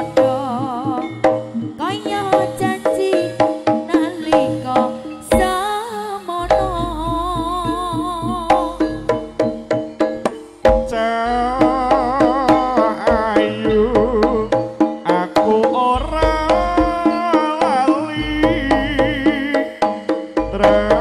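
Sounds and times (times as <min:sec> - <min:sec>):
wavering melody: 0:00.0 - 0:21.0
regular drum strokes: 0:06.4 - 0:21.0.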